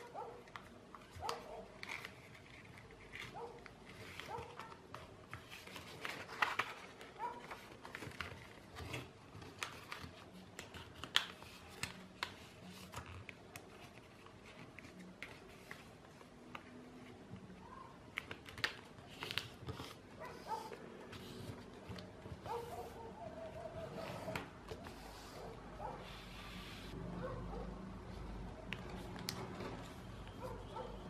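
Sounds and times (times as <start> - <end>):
paper being folded and creased: 0.0 - 17.2, 18.1 - 22.8.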